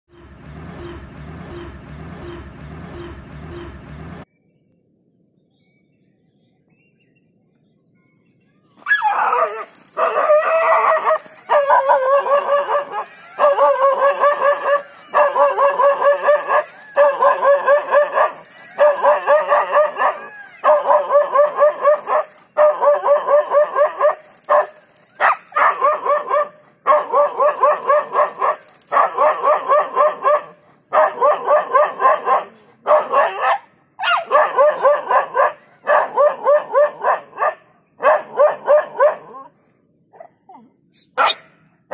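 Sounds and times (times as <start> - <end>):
dog barking in rapid volleys: 8.9 - 39.6, 41.0 - 41.6.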